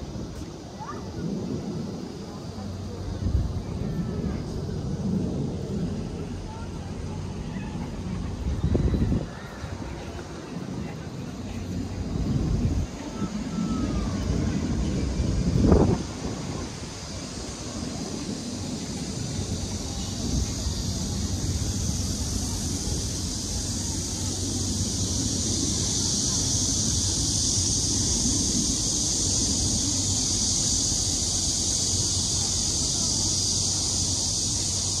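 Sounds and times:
distant traffic: 0.0s - 35.0s
steady high hiss: 0.0s - 35.0s
wind rumble on microphone: 0.0s - 35.0s.

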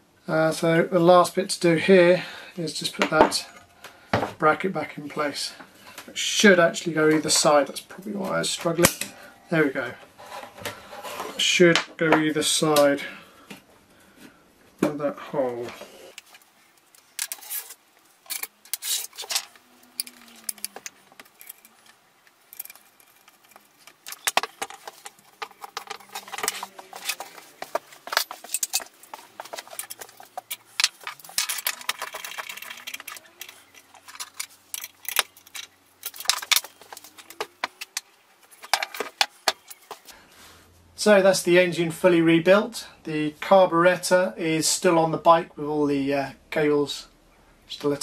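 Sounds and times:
metal scraping: 15.8s - 40.1s
metal tools clinking: 16.8s - 40.1s.

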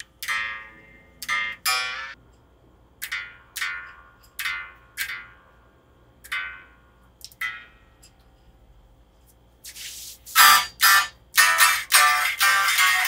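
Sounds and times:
electric guitar single notes: 10.4s - 13.0s.

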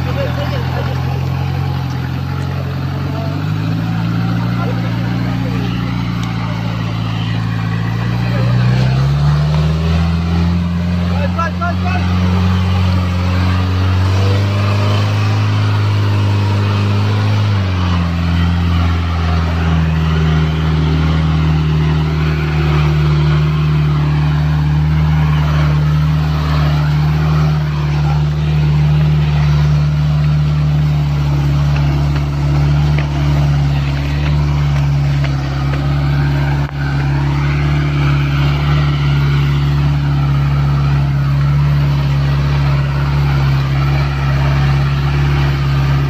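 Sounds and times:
jeep engine droning: 0.0s - 46.0s.

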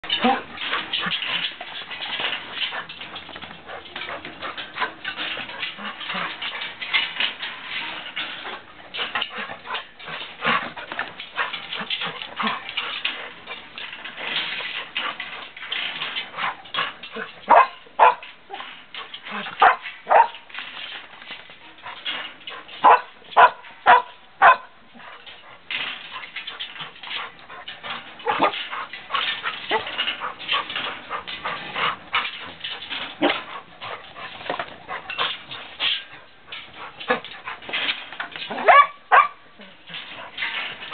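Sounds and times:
puppy barking: 17.5s - 18.2s, 19.6s - 20.3s, 22.8s - 24.7s, 38.6s - 39.4s.

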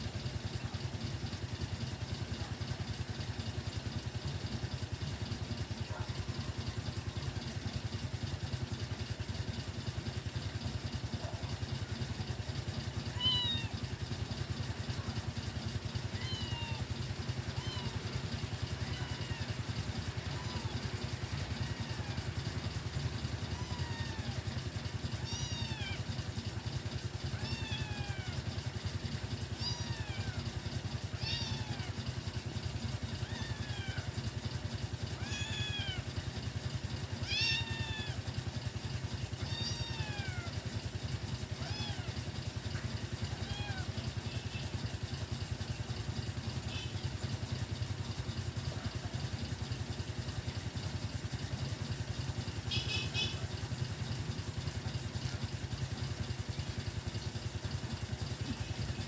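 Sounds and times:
kitten mewing: 13.1s - 13.7s, 16.1s - 16.9s, 17.5s - 20.9s, 23.5s - 24.5s, 25.1s - 26.1s, 27.4s - 28.4s, 29.6s - 30.4s, 31.2s - 32.0s, 33.2s - 34.1s, 35.2s - 36.1s, 37.2s - 38.2s, 39.4s - 40.5s, 41.6s - 42.2s, 43.3s - 44.0s.

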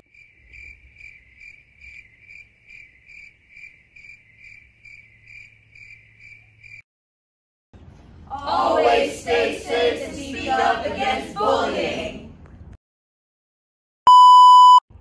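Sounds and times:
crickets chirping: 0.0s - 6.8s.

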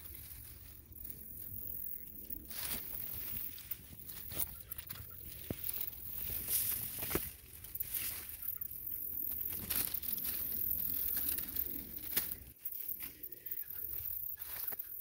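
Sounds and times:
leaves rustling: 0.0s - 15.0s
bird cooing: 4.0s - 6.3s, 8.1s - 15.0s.

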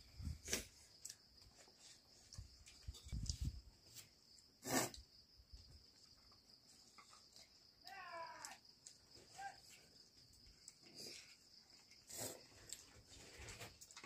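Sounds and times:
high-pitched hiss: 3.1s - 5.3s.

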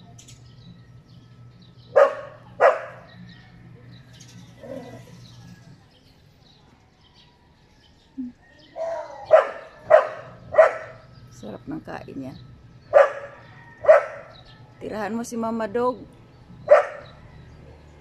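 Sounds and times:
dog barking: 1.9s - 3.2s, 8.8s - 11.1s, 12.9s - 14.4s, 16.6s - 17.2s.

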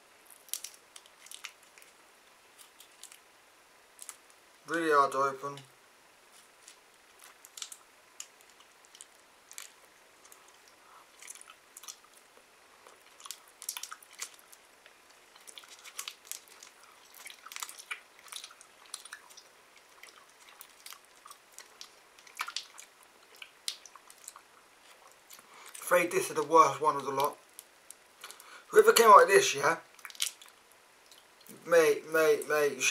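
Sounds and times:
candy wrapper crinkling: 0.3s - 2.0s, 2.6s - 3.2s, 4.0s - 4.3s, 6.4s - 12.3s, 12.9s - 29.1s, 29.9s - 30.6s
chewing sticky candy: 0.3s - 3.3s, 6.4s - 25.9s, 29.8s - 31.6s.

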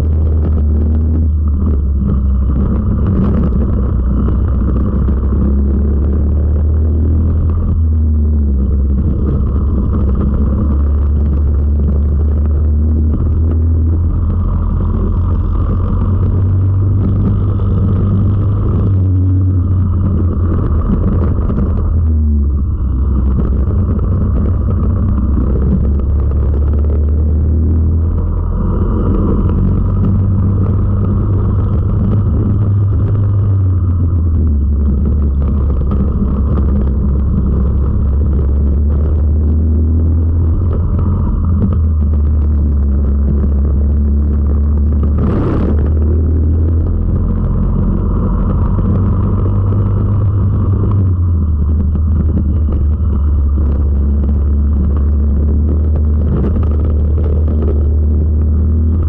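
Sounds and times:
racing kart engine: 0.0s - 59.0s.

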